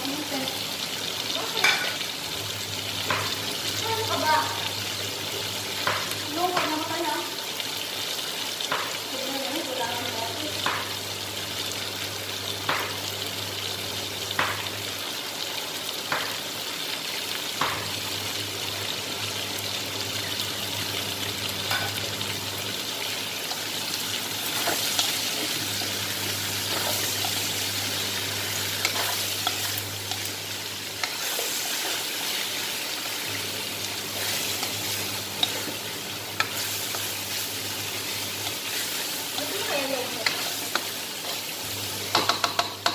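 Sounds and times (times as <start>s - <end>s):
food sizzling in a wok: 0.0s - 42.9s
spatula scraping a wok: 26.6s - 27.8s, 28.6s - 30.3s, 31.0s - 32.6s, 34.1s - 35.8s.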